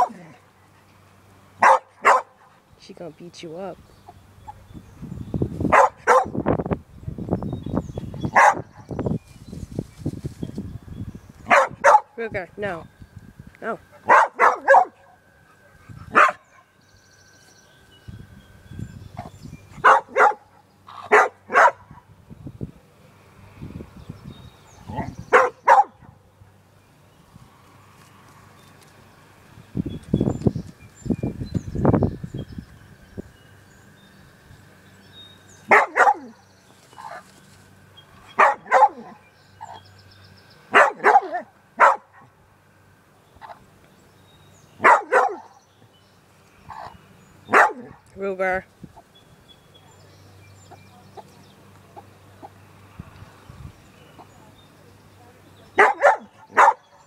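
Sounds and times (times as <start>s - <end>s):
dog barking: 1.6s - 2.4s, 5.7s - 6.4s, 8.3s - 8.7s, 11.5s - 12.1s, 14.0s - 15.0s, 16.1s - 16.4s, 19.8s - 22.0s, 25.0s - 26.1s, 35.7s - 36.4s, 38.4s - 39.2s, 40.7s - 42.3s, 44.8s - 45.5s, 47.5s - 48.0s, 55.8s - 56.9s.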